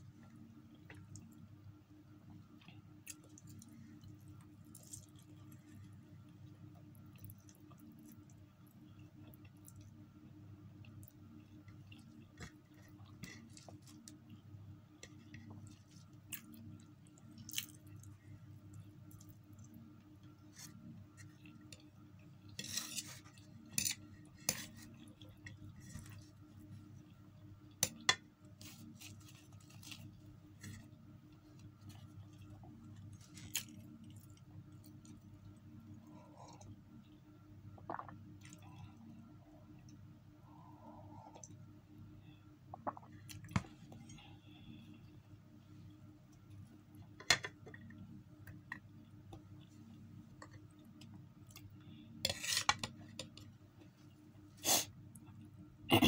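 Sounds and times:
steady low hum: 0:00.0 - 0:56.0
chewing: 0:15.1 - 0:18.1, 0:31.5 - 0:35.3.

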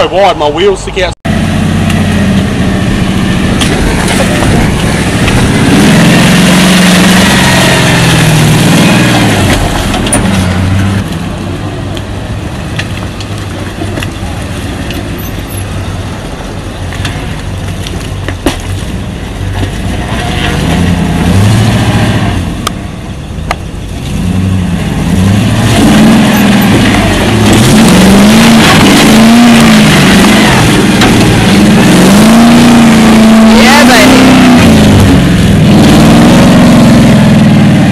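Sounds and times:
four-wheel drive engine revving: 0:01.3 - 0:11.6, 0:19.5 - 0:22.8, 0:23.9 - 0:37.9
tyres in mud: 0:01.3 - 0:22.8, 0:23.4 - 0:37.9.

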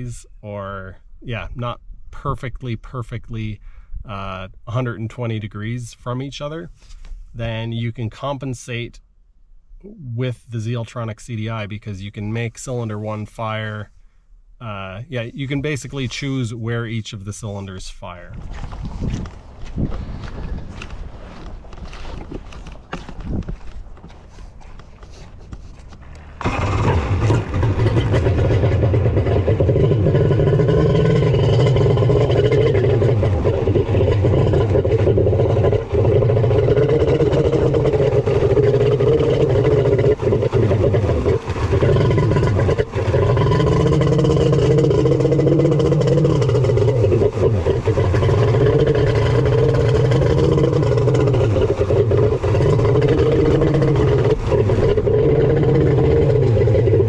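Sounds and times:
jet ski engine running: 0:26.0 - 0:30.4.

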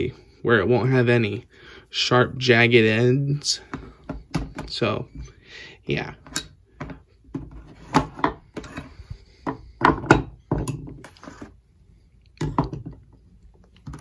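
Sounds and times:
metal tools knocking and clicking: 0:09.5 - 0:11.0.

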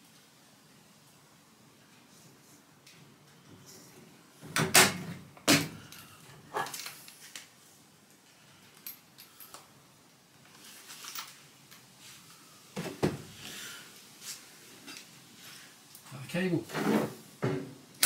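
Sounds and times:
tools clicking and clattering: 0:05.5 - 0:07.2.

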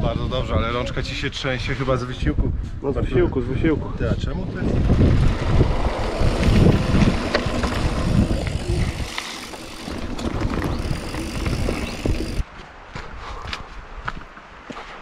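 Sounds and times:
wind buffeting microphone: 0:02.0 - 0:14.2
bike rattles and knocks: 0:04.6 - 0:12.4
bike tyres on gravel trail: 0:04.6 - 0:12.5.

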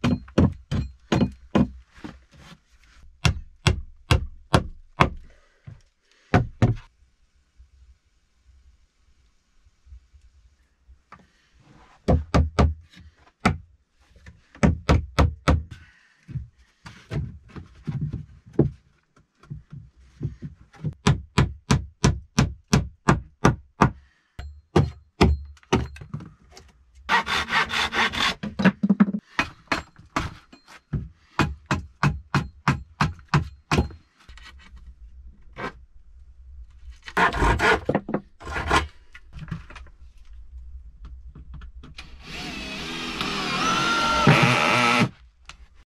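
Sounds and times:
boards rubbing and scraping: 0:37.0 - 0:39.7.

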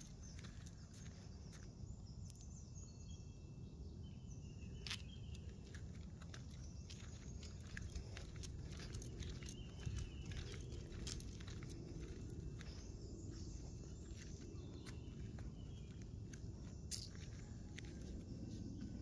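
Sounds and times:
footsteps on paving and grass: 0:00.0 - 0:01.8, 0:04.8 - 0:19.0
low steady rumble: 0:05.3 - 0:19.0.

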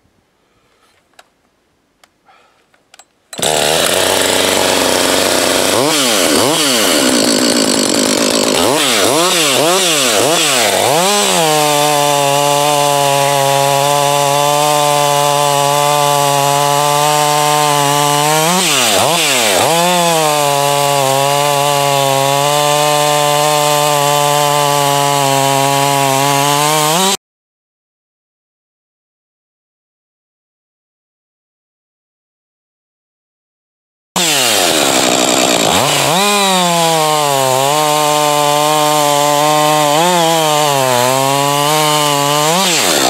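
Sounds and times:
chainsaw revving and cutting log: 0:03.4 - 0:27.2, 0:34.2 - 0:43.0.

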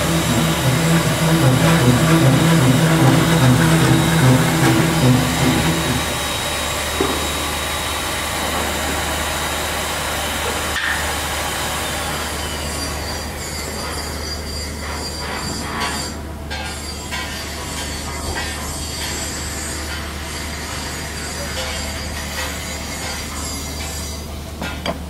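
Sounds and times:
low two-tone pulsing sound: 0:00.0 - 0:06.6
loud steady mechanical noise: 0:00.0 - 0:25.0.

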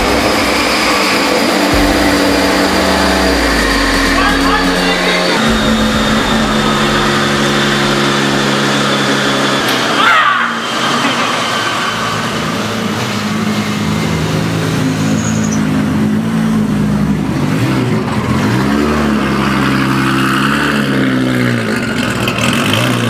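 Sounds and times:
car engine at low revs: 0:00.0 - 0:09.8.

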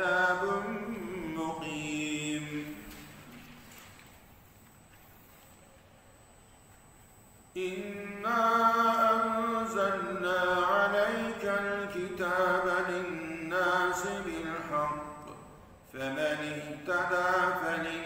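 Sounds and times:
man chanting melodically: 0:00.0 - 0:03.8, 0:07.5 - 0:18.0.

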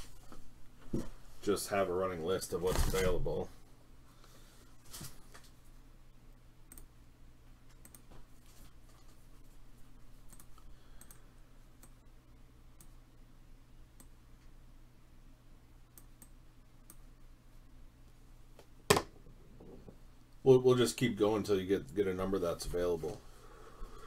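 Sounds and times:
low electrical hum: 0:00.0 - 0:24.0
computer mouse clicking: 0:06.7 - 0:06.9, 0:07.7 - 0:08.1, 0:10.3 - 0:11.2.

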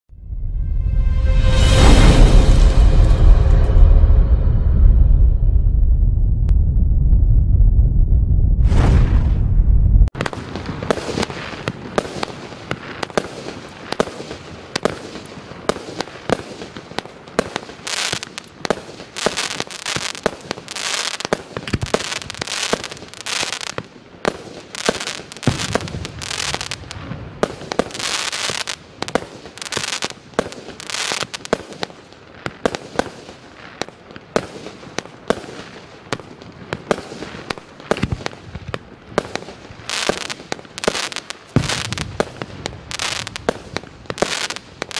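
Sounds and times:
firework crackling: 0:07.4 - 0:44.9
firework shots bursting: 0:36.8 - 0:44.9.

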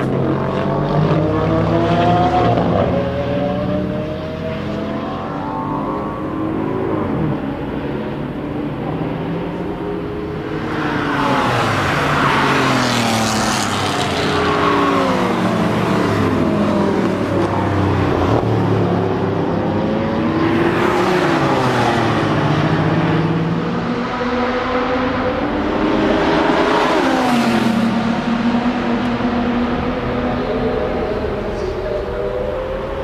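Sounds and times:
race car engines accelerating past: 0:00.0 - 0:33.0.

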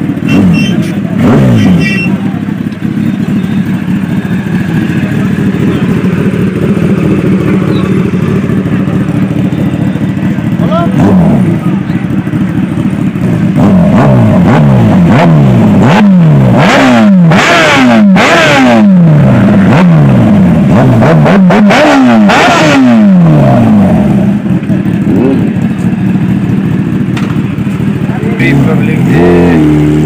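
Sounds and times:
motorcycle engine idling: 0:00.0 - 0:16.6, 0:23.0 - 0:30.0
motorcycle engine revving: 0:00.0 - 0:30.0.

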